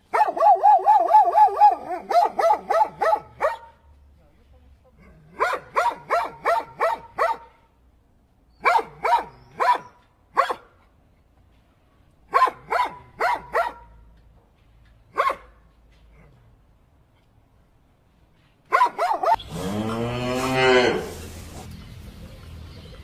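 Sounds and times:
dog barking: 0.1s - 3.8s, 5.3s - 7.6s, 8.6s - 10.7s, 12.3s - 14.0s, 15.1s - 15.6s, 18.7s - 19.4s.

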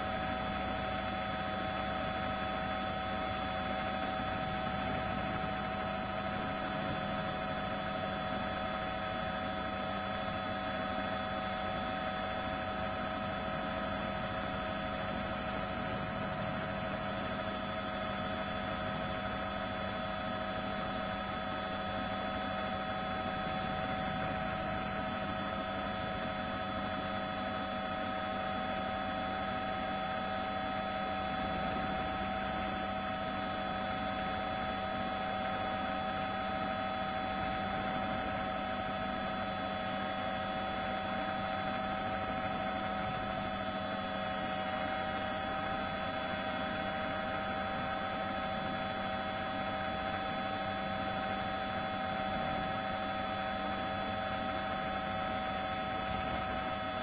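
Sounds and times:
helicopter drone with whining tones: 0.0s - 57.0s.

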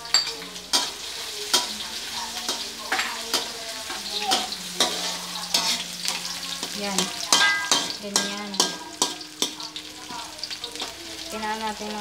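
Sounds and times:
onion sizzling in hot oil: 0.0s - 12.0s
metal spatula scraping a wok: 0.7s - 9.9s.

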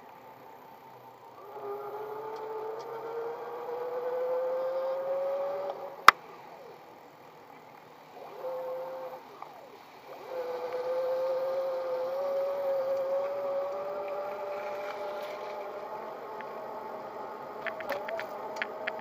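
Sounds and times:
electric bicycle motor whining: 0.0s - 19.0s.

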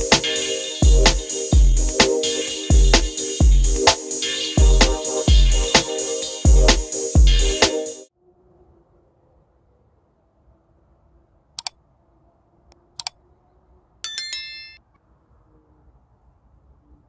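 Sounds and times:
mouse clicks: 13.0s - 13.2s
bell ding: 14.1s - 14.8s.

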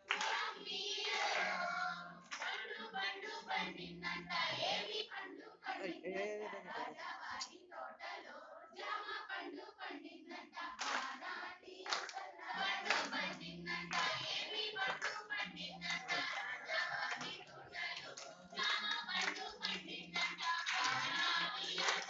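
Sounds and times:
hands clapping: 0.0s - 1.6s, 2.2s - 2.8s, 10.8s - 22.0s
women singing together: 0.0s - 22.0s.

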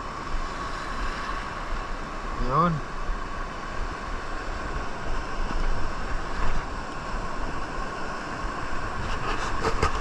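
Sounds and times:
sea waves washing over rocks: 0.0s - 10.0s
wind on microphone: 3.8s - 10.0s.

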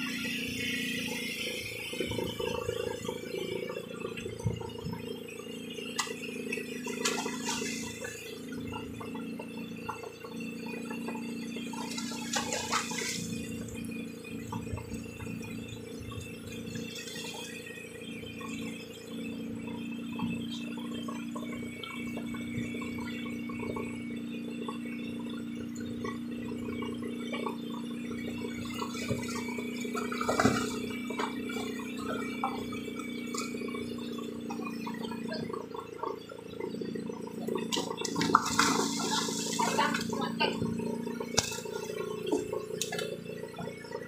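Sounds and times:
boat motor humming: 0.0s - 44.0s
water splashing against hull: 5.8s - 9.2s, 10.7s - 13.8s, 27.3s - 36.2s, 37.4s - 43.2s.

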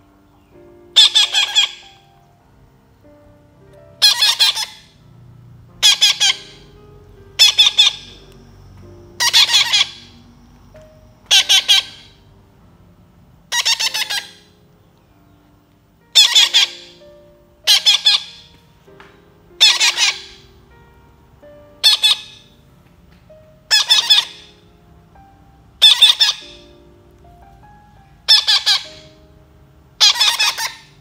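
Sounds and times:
parrot chick squawking: 0.9s - 2.1s, 4.0s - 5.0s, 5.8s - 6.8s, 7.4s - 8.3s, 9.1s - 10.3s, 11.3s - 12.3s, 13.5s - 14.6s, 16.1s - 17.0s, 17.6s - 18.6s, 19.6s - 20.6s, 21.8s - 22.6s, 23.7s - 24.6s, 25.8s - 26.8s, 28.2s - 29.2s, 30.0s - 31.0s.

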